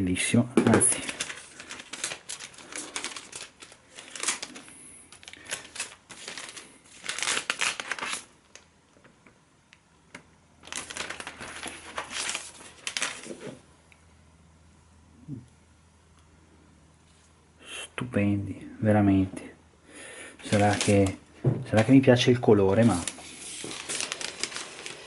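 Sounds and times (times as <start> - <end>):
cardboard packaging rustling: 0.6 - 8.7, 10.6 - 13.6, 20.4 - 25.0.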